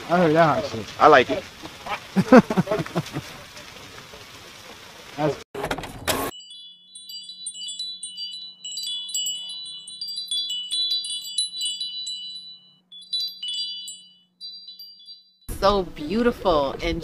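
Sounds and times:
chimes ringing: 6.3 - 15.6.

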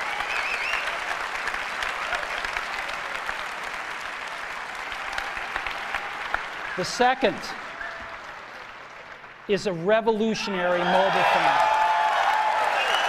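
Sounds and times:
audience applauding: 0.0 - 9.8, 10.5 - 13.0
wavering whistle from crowd: 0.2 - 1.0, 12.7 - 13.0.

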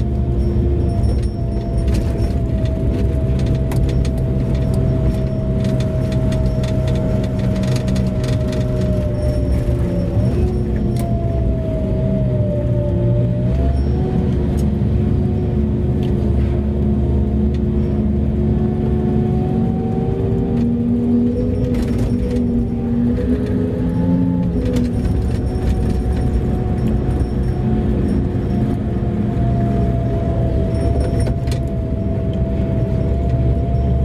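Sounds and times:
loose cab parts rattling: 0.0 - 11.3, 21.1 - 28.8
low engine drone with whine: 0.0 - 34.0.

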